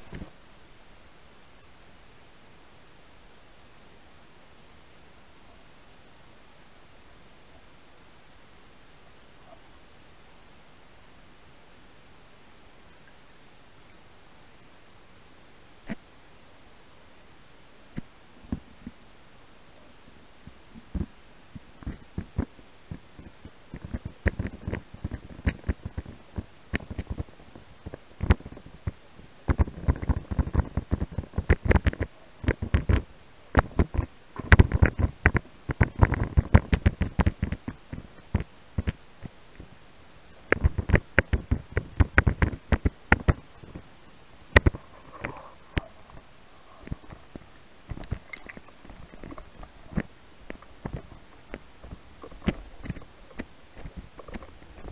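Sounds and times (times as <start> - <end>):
underwater handling clicks and knocks: 46.8 - 54.9.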